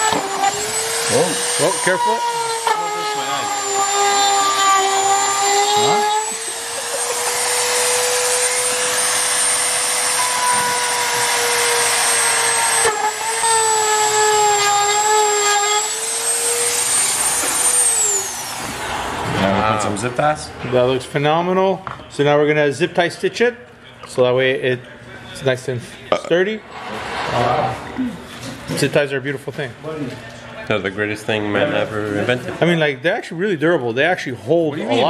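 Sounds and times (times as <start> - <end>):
rotary tool whining: 0.0 - 19.1.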